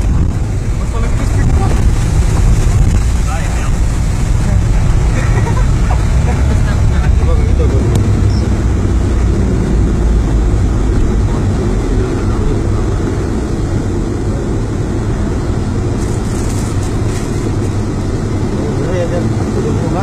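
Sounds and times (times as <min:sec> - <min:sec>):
water cascading down rock: 0:00.0 - 0:13.6
rain rushing: 0:00.0 - 0:20.0
vehicle rumble from inside cabin: 0:00.0 - 0:20.0.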